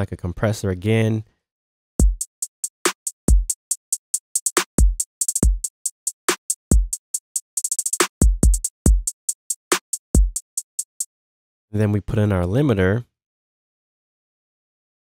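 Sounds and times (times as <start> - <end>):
booming kick drums: 2.0 - 2.2
hi-hats: 2.0 - 11.1.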